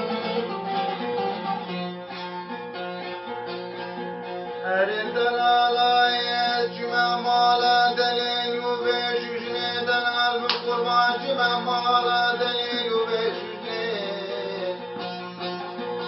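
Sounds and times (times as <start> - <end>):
long-necked lute strummed with drone: 0.0 - 16.0
man singing folk lines: 4.5 - 15.9.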